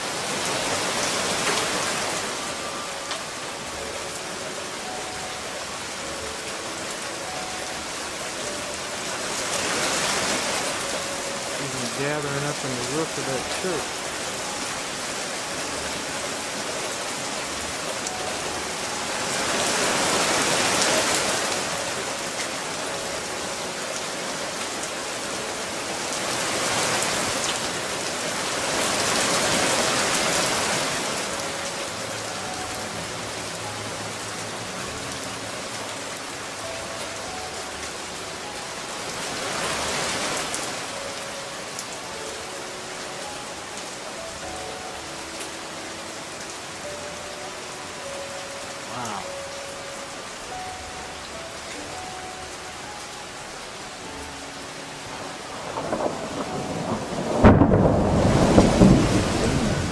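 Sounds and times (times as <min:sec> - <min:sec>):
hail falling on roofs and pavement: 0:00.0 - 0:03.3, 0:07.9 - 0:31.6, 0:55.2 - 0:59.9.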